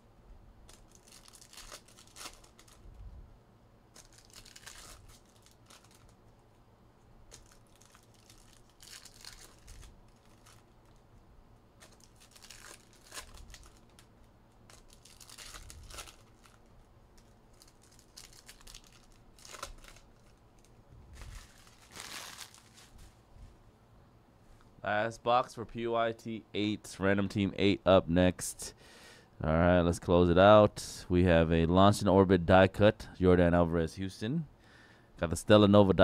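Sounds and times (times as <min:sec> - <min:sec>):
foil wrappers crinkling and tearing: 0:00.6 - 0:02.9, 0:03.9 - 0:06.2, 0:07.3 - 0:11.1, 0:11.8 - 0:23.2.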